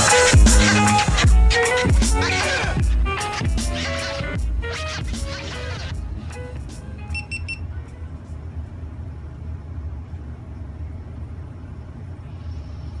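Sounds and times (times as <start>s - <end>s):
camera start-up beeps: 7.1s - 7.6s.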